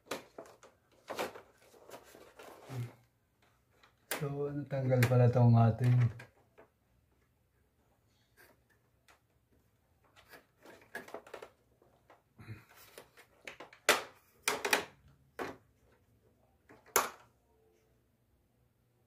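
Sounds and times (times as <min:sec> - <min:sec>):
plastic clicks and knocks: 0:00.0 - 0:01.6, 0:10.0 - 0:12.2, 0:12.9 - 0:16.0.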